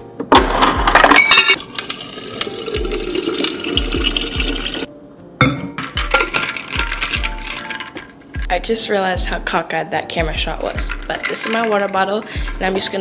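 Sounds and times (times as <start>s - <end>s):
water running into bottle: 1.6s - 4.9s
ice cubes clattering into metal bottle: 5.8s - 8.1s, 10.7s - 13.0s.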